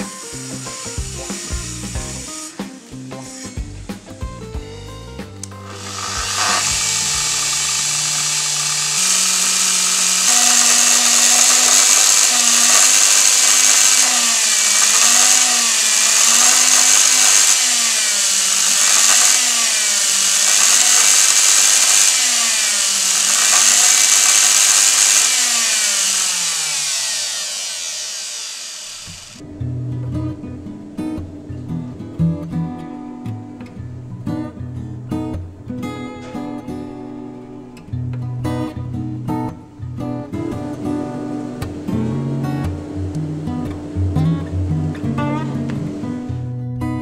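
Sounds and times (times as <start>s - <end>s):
track saw motor whining: 0.0s - 3.6s, 5.4s - 29.4s.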